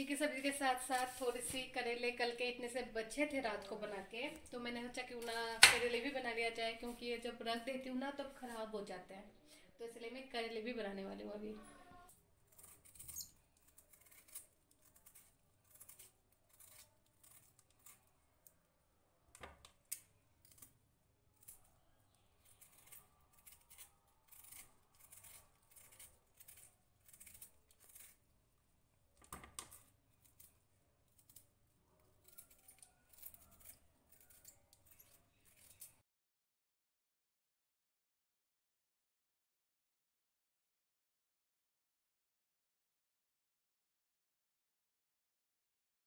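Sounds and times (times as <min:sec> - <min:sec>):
knife cutting vegetable: 0:12.4 - 0:18.7, 0:19.4 - 0:28.3, 0:29.2 - 0:36.0.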